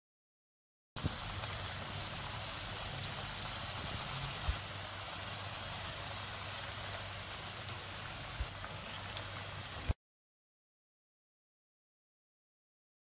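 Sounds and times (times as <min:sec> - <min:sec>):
oil sizzling in a frying pan: 0:01.0 - 0:10.0.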